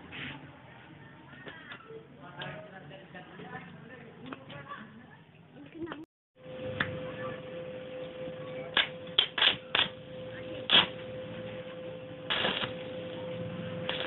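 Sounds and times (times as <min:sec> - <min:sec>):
welder humming: 0:06.4 - 0:14.0
welding arc crackling: 0:08.7 - 0:10.0, 0:10.6 - 0:11.0, 0:12.2 - 0:14.0.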